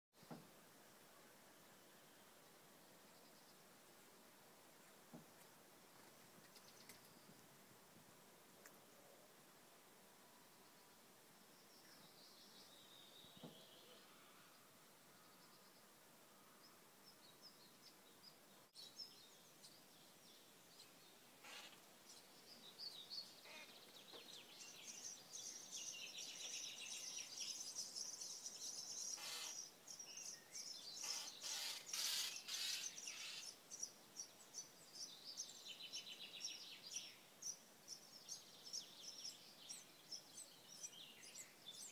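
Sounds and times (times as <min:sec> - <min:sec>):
nestlings chirping and begging: 0:21.4 - 0:21.8, 0:23.4 - 0:34.7.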